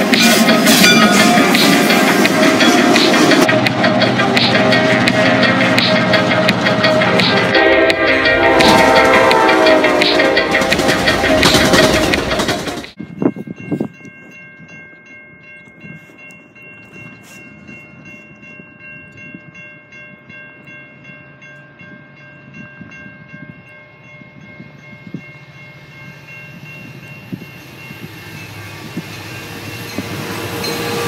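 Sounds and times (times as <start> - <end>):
crossing warning bell ringing: 0.0 - 31.0
freight train rumble: 0.0 - 31.0.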